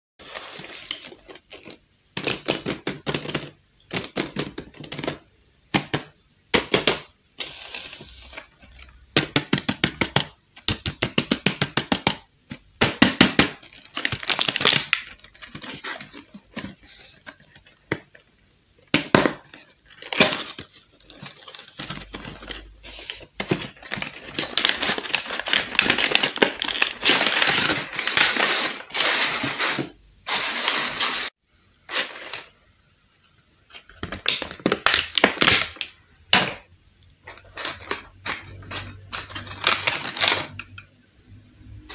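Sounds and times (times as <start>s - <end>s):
cardboard packaging rustling: 0.2s - 3.5s, 13.5s - 18.3s, 19.2s - 31.3s, 31.9s - 32.5s, 37.2s - 40.6s.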